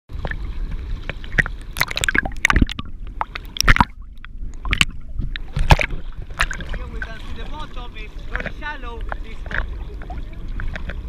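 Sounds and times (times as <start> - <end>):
water sloshing and splashing: 0.1 - 11.0.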